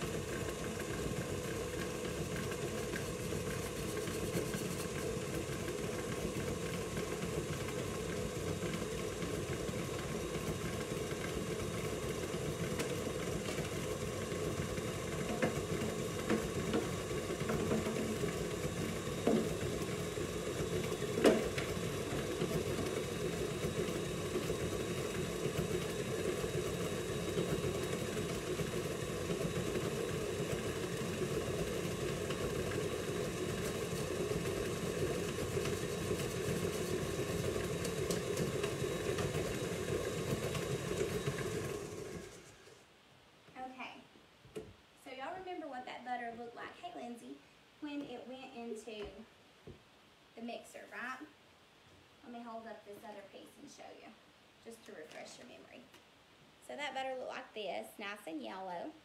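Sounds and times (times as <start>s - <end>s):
stand mixer running: 0.0s - 42.8s.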